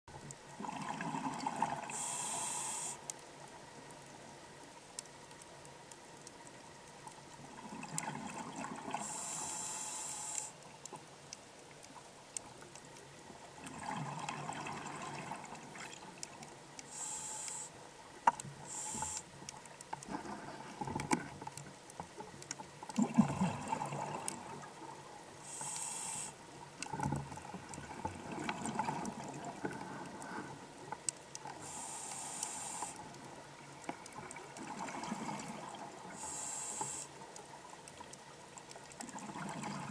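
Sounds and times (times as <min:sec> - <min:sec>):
exhaled bubbles gurgling: 0:00.5 - 0:02.5, 0:07.4 - 0:09.4, 0:13.6 - 0:16.3, 0:22.9 - 0:30.4, 0:33.6 - 0:37.0, 0:39.0 - 0:39.9
regulator inhale hiss: 0:01.9 - 0:03.1, 0:09.0 - 0:10.6, 0:16.8 - 0:17.8, 0:18.6 - 0:19.3, 0:25.4 - 0:26.4, 0:31.6 - 0:33.1, 0:36.1 - 0:37.2.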